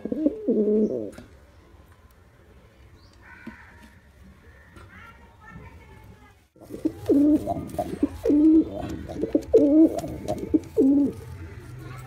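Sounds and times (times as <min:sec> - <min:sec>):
pigeon cooing: 0:00.0 - 0:01.1, 0:06.6 - 0:11.7.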